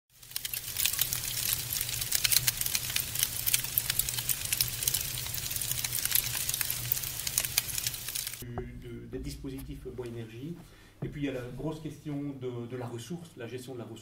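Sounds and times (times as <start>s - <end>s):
wood fire crackling: 0.1s - 12.0s
low steady hum: 8.4s - 13.4s.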